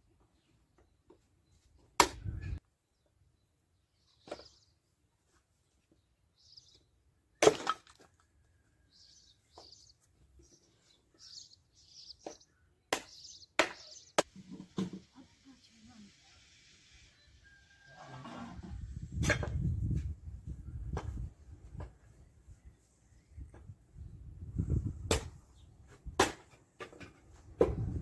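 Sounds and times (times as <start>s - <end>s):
small birds chirping: 0.2s - 5.0s, 5.6s - 7.2s, 8.5s - 14.3s
axe splitting wood: 7.4s - 8.0s, 26.2s - 26.6s.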